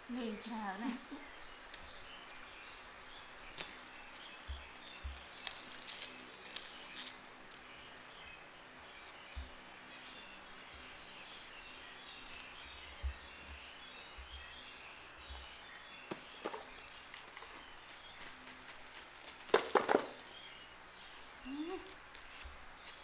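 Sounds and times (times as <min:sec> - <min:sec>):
small birds chirping: 0:00.0 - 0:23.0
steady background noise: 0:00.0 - 0:23.0
soft low bumps: 0:09.2 - 0:20.6.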